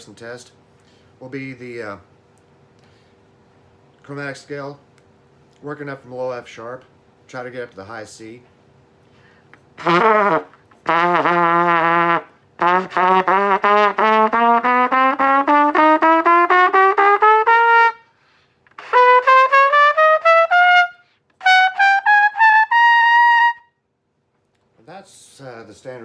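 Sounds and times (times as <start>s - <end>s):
trumpet playing a scale: 9.8s - 23.7s.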